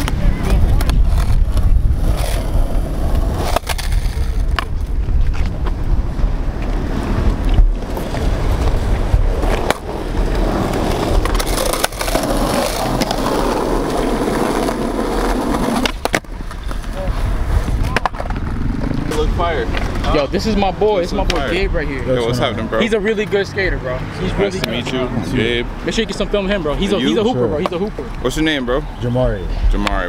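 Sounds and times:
skateboard clacks on ground: 0:00.0 - 0:05.8, 0:06.5 - 0:20.2, 0:21.2 - 0:21.5, 0:29.8 - 0:30.0
skateboard wheels rolling on concrete: 0:00.0 - 0:30.0.

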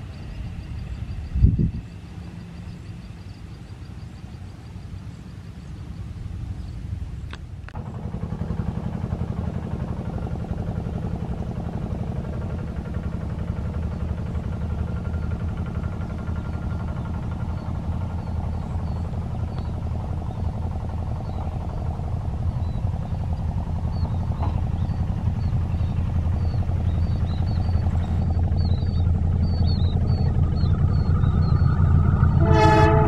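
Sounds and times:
vehicle engine running: 0:00.0 - 0:33.0.

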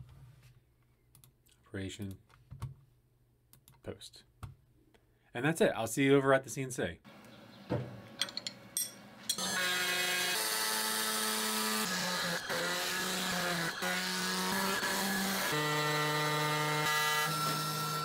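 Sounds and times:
cnc router cutting: 0:09.4 - 0:18.0.

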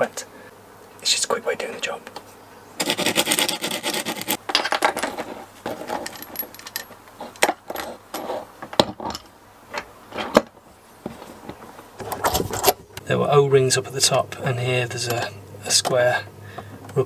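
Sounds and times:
metal hoses scraping and clinking: 0:02.8 - 0:09.3.

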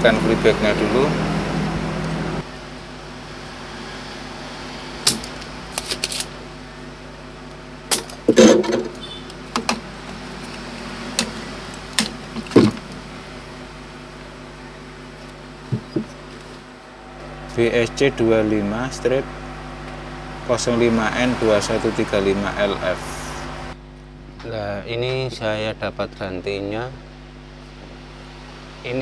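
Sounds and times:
steady low hum: 0:00.0 - 0:29.0
tools and parts clicking: 0:05.1 - 0:06.3, 0:07.9 - 0:09.8.

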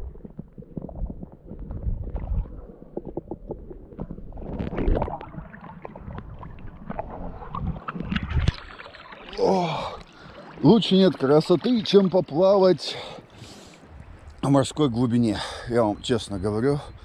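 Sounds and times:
muffled underwater rumble: 0:00.0 - 0:08.6
water swirling: 0:00.0 - 0:14.3.

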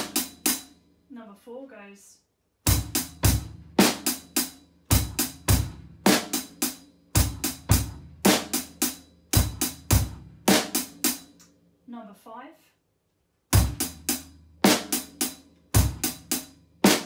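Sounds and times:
funk drum groove: 0:00.0 - 0:00.7, 0:02.7 - 0:11.3, 0:13.5 - 0:17.0.

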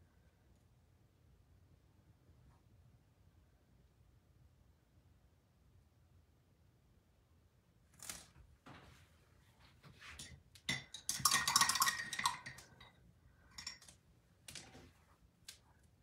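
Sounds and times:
paintbrush rattling against a jar: 0:10.1 - 0:14.0.

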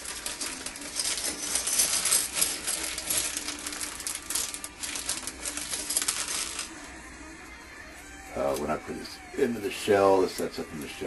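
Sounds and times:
small hard parts clicking: 0:00.0 - 0:06.7.

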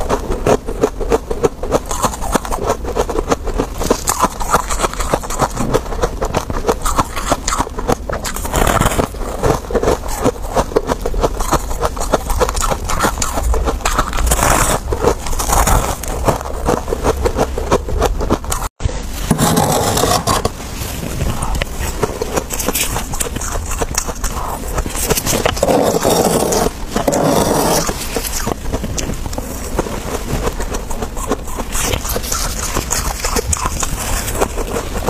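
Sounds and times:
frost crunching when chewed: 0:00.0 - 0:35.0
metal spoon scraping frost: 0:18.4 - 0:35.0.

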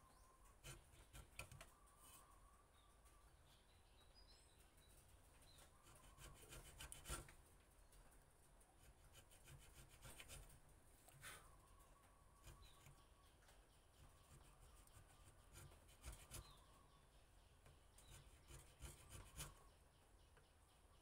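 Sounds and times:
carving tool scraping wood: 0:00.6 - 0:01.6, 0:05.8 - 0:07.4, 0:08.8 - 0:10.5, 0:12.4 - 0:13.1, 0:14.3 - 0:16.6, 0:17.9 - 0:19.7.

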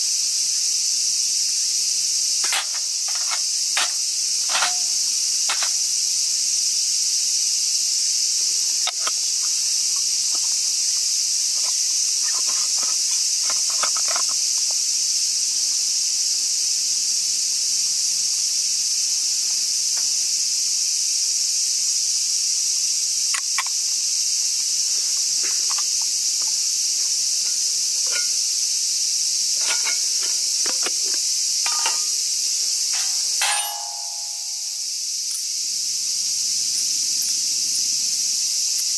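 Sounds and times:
insect chorus: 0:00.0 - 0:38.9
small metal objects clinking: 0:02.4 - 0:05.8, 0:28.0 - 0:28.4, 0:29.6 - 0:32.2, 0:32.8 - 0:35.5.

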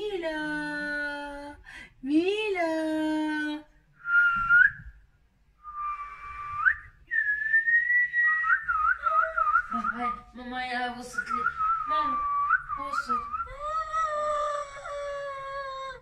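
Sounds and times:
person whistling: 0:04.0 - 0:05.0, 0:05.6 - 0:10.2, 0:11.2 - 0:13.7.

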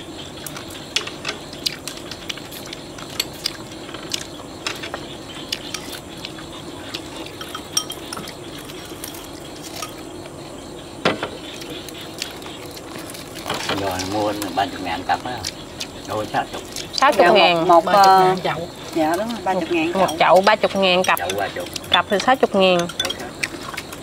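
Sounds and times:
chopsticks clinking on porcelain bowls: 0:07.0 - 0:08.4, 0:19.9 - 0:23.8.

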